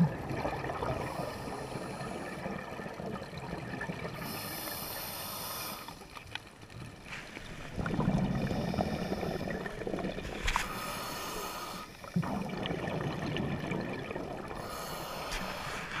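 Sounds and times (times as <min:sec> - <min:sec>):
exhaled air bubbling underwater: 0:00.0 - 0:16.0
regulator hissing on inhale: 0:04.2 - 0:06.1, 0:08.4 - 0:09.6, 0:10.6 - 0:12.2, 0:14.6 - 0:16.0.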